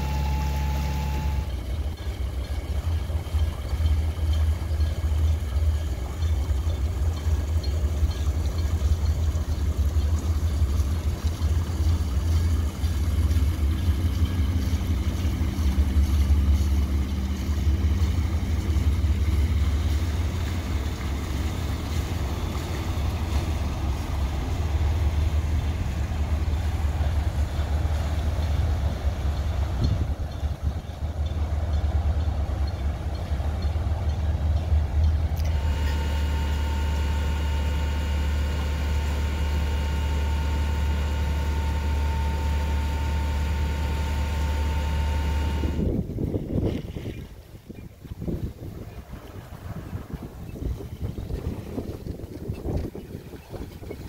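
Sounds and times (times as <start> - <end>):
boat engine droning: 0.0 - 54.0
water noise: 0.0 - 54.0
wind noise: 27.8 - 31.4, 45.5 - 54.0.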